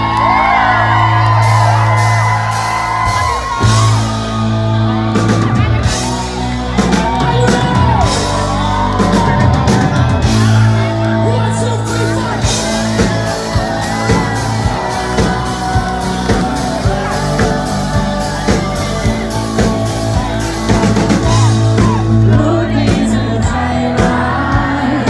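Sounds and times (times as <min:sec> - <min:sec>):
electric guitars: 0:00.0 - 0:25.0
keyboards: 0:00.0 - 0:25.0
drumbeat: 0:01.4 - 0:10.9, 0:11.8 - 0:25.0
man singing: 0:14.7 - 0:25.0.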